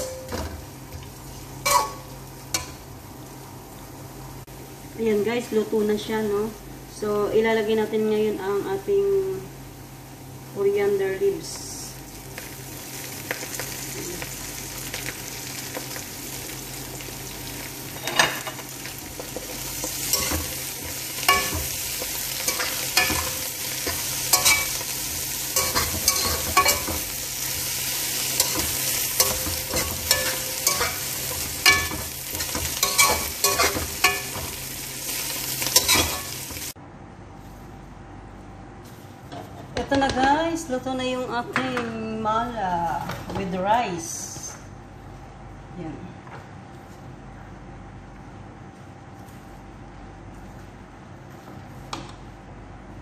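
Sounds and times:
fish sizzling in oil: 11.8 - 36.8
metal turner scraping pan: 19.9 - 27.7, 28.3 - 34.6, 35.6 - 36.5.

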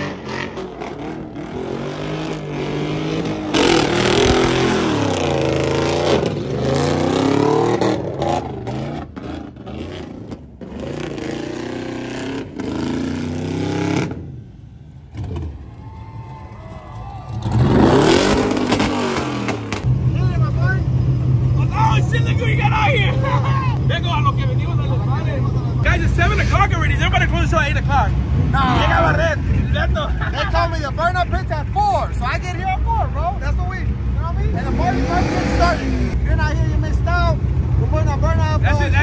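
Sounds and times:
tires spinning on asphalt: 0.0 - 14.4, 15.0 - 29.6
truck engine revving hard: 0.0 - 14.4, 17.3 - 20.0, 34.5 - 36.2.

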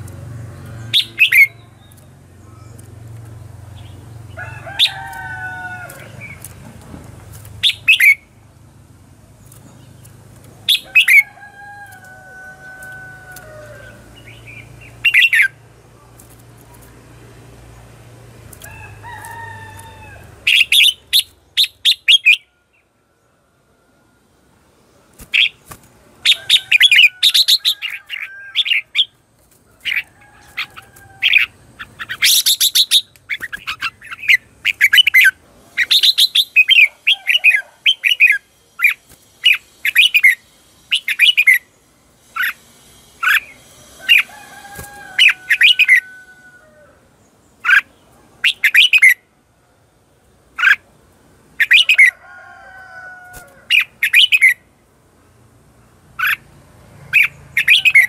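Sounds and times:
bird calling in sharp notes: 0.8 - 2.8.

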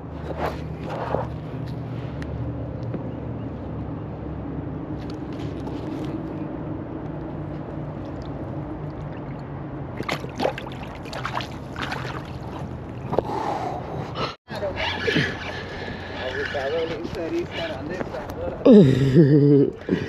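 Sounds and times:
short sharp water splashes: 8.1 - 13.2.

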